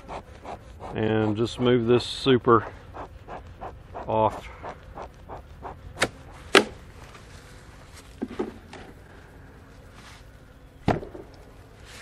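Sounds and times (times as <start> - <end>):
bee smoker puff: 0.0 - 7.5.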